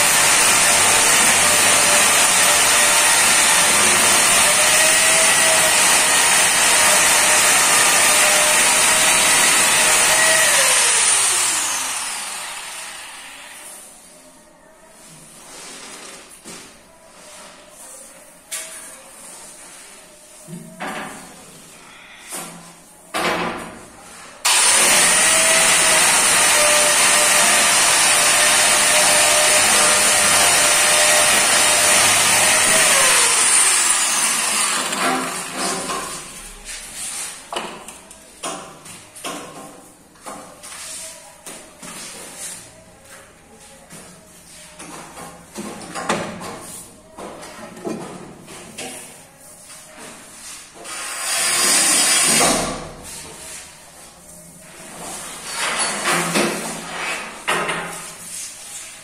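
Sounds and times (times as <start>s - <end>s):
angle grinder cutting stone: 0.0s - 13.1s, 24.5s - 35.5s.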